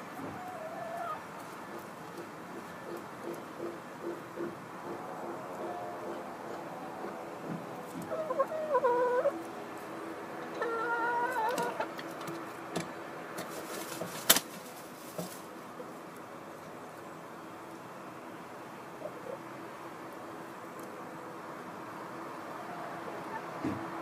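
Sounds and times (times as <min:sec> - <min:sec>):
hen calling: 0:08.0 - 0:09.5, 0:10.5 - 0:11.9
rustles in straw: 0:13.4 - 0:15.6.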